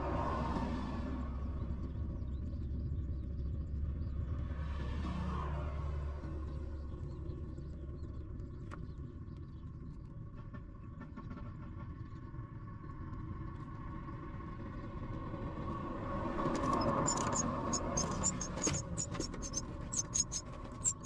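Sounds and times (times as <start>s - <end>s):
bird nestlings begging calls: 16.8s - 21.0s.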